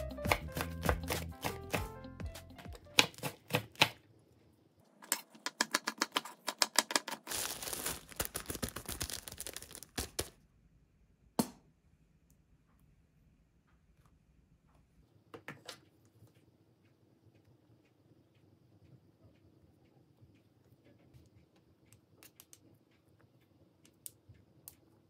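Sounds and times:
knife chopping on wooden board: 0:00.2 - 0:04.0
plastic bag rustling: 0:07.1 - 0:10.4.

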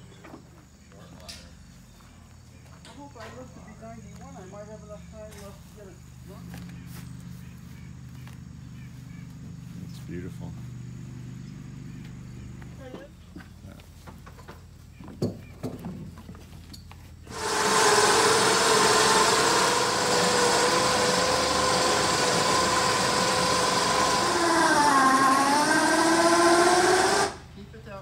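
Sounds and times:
electric winch motor whining: 0:17.3 - 0:27.5.

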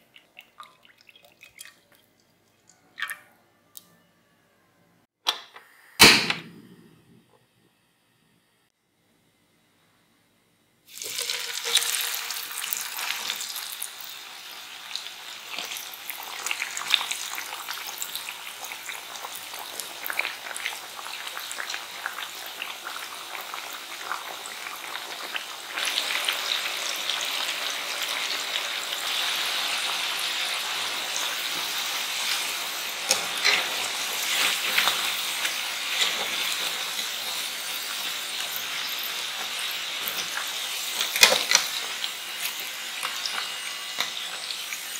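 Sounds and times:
potatoes deep-frying in oil: 0:10.9 - 0:44.9.

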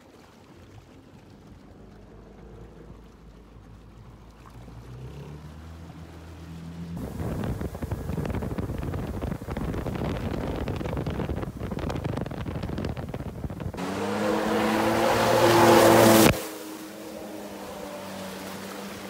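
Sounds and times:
water rushing and splashing: 0:00.0 - 0:19.0
jet ski engine: 0:00.6 - 0:19.0
wind on microphone: 0:07.0 - 0:16.4.

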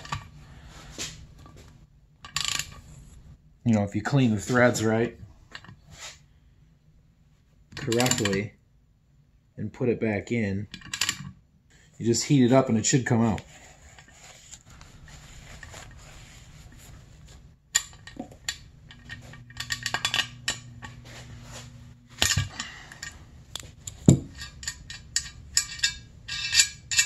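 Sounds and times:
metal tools clinking: 0:17.8 - 0:20.9, 0:22.2 - 0:27.0.

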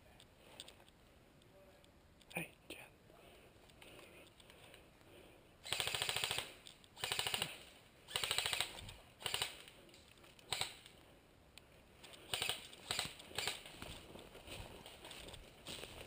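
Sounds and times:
airsoft gun firing: 0:05.6 - 0:09.6.

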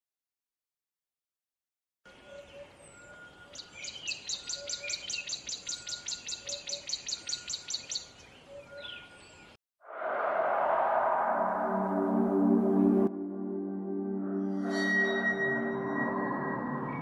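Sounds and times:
faint birds calling: 0:02.1 - 0:09.6
bird repeating high chirp: 0:02.3 - 0:09.2.

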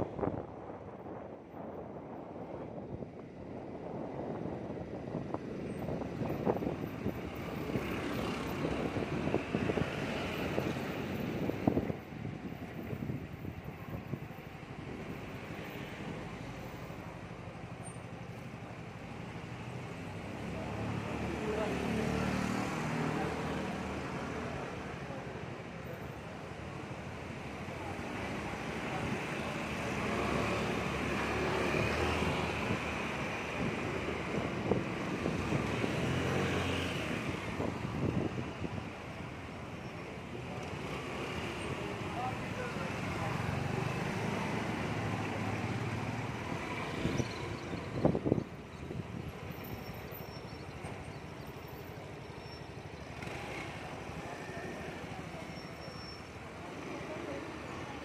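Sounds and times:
wind on microphone: 0:00.0 - 0:15.4, 0:31.7 - 0:39.1, 0:46.4 - 0:49.4
surrounding traffic: 0:00.0 - 0:58.0.

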